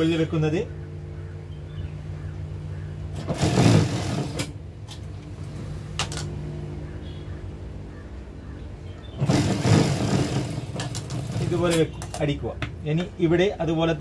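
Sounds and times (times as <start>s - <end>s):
sewing machine stitching: 3.2s - 4.6s, 9.2s - 12.0s
sewing machine motor humming: 9.2s - 11.9s.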